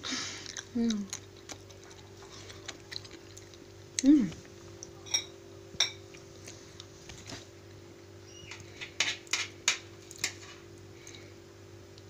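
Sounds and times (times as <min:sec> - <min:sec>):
steady low hum: 0:00.0 - 0:12.0
cutlery clinking on plates: 0:05.1 - 0:06.0.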